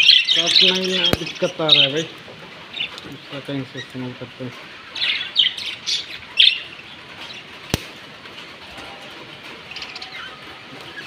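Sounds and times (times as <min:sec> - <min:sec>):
budgerigars chirping: 0:00.0 - 0:04.2, 0:04.8 - 0:07.6, 0:09.6 - 0:11.0.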